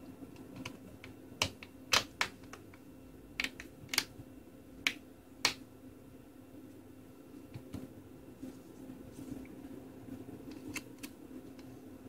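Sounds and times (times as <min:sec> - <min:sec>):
plastic clips clicking into place: 0:03.4 - 0:04.1.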